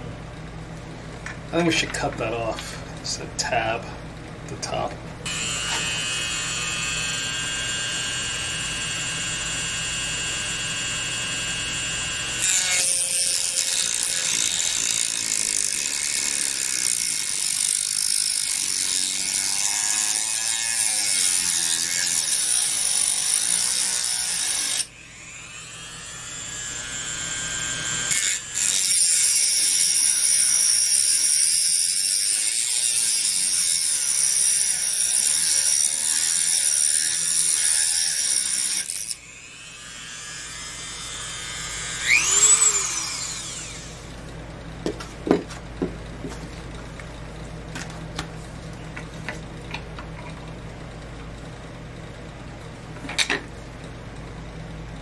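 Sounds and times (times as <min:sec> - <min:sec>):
rotary tool whining: 0:05.2 - 0:44.4
cut-off wheel grinding metal: 0:05.3 - 0:44.2.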